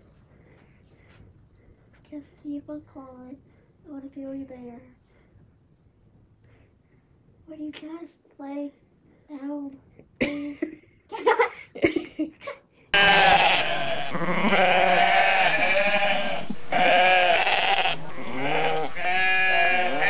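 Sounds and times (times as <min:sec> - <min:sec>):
sheep bleating: 0:12.9 - 0:20.0.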